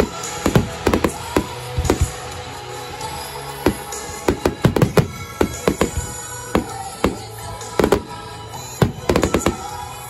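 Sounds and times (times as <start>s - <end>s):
firework shells bursting: 0.0s - 2.4s, 3.7s - 8.2s
music playing: 0.0s - 10.0s.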